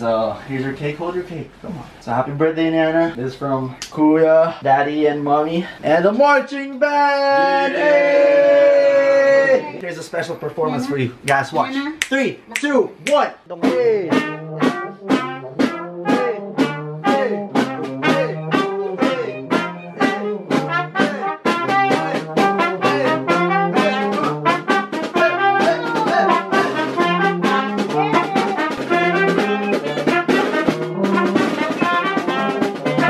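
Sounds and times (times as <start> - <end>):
snare drum beat: 12.0 - 33.0
marching band playing: 12.6 - 33.0
brass melody: 13.0 - 33.0
saxophone: 13.6 - 33.0.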